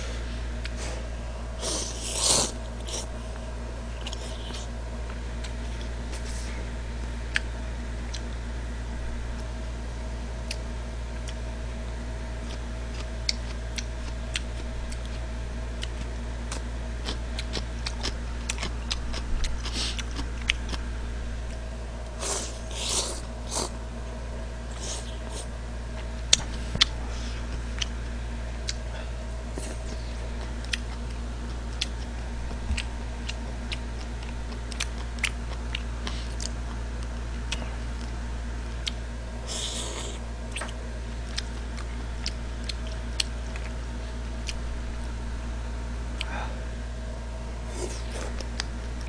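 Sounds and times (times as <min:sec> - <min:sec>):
steady low hum: 0:00.0 - 0:49.0
chewing clicks and smacks: 0:12.4 - 0:20.8, 0:29.7 - 0:38.2, 0:38.8 - 0:39.0, 0:40.5 - 0:43.8, 0:44.4 - 0:44.6, 0:48.1 - 0:49.0.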